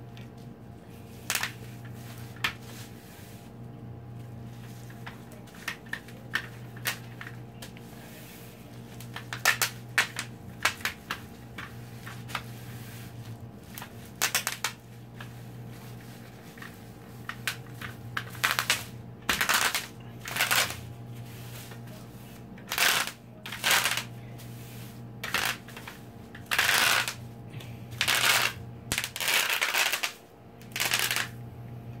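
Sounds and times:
steady low hum: 0.0 - 32.0
bubble wrap popping: 9.0 - 21.8, 22.7 - 24.1, 25.2 - 27.2, 28.0 - 31.3.

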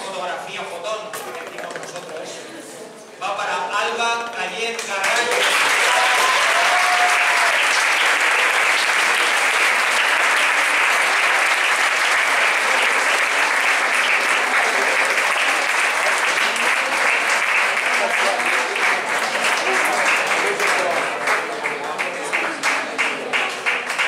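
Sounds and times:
audience applauding: 4.8 - 24.0.

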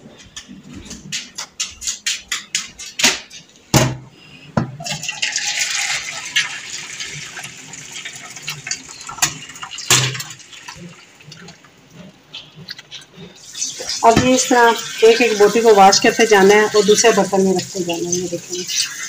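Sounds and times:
water pouring into a colander: 4.8 - 11.6, 13.5 - 19.0
metal pot and lid clanking: 8.6 - 10.4.

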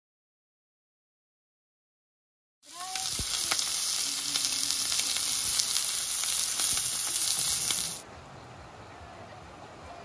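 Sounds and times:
meat sizzling in a frying pan: 2.7 - 8.0.

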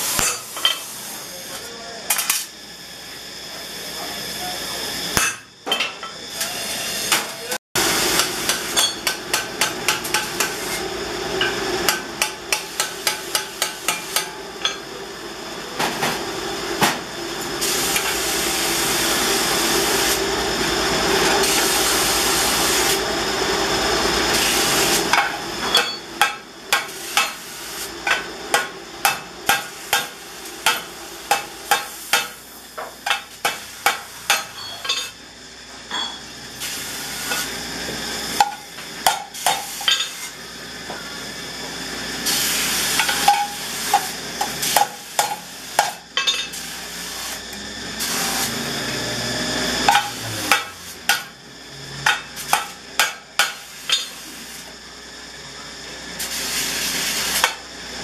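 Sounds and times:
hammer striking sheet steel: 8.1 - 10.8, 25.1 - 27.4, 28.0 - 35.1, 38.4 - 40.1, 43.0 - 46.5, 49.9 - 51.3, 52.0 - 54.1.

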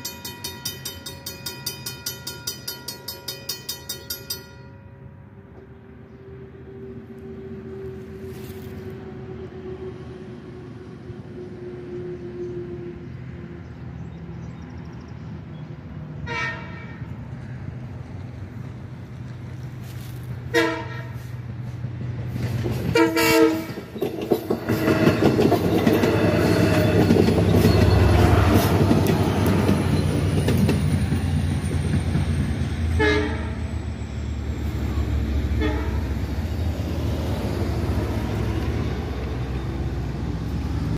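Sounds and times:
train rumble: 0.0 - 40.9
train horn: 16.2 - 17.2, 20.5 - 21.4, 22.9 - 23.9, 24.6 - 29.8, 32.8 - 33.9, 35.4 - 36.3
train wheels clickety-clack: 21.2 - 33.0.

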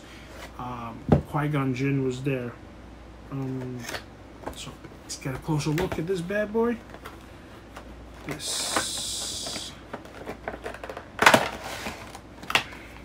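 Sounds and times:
packaging clicks and rustles: 5.6 - 13.0
packaging sliding hiss: 8.3 - 9.8.

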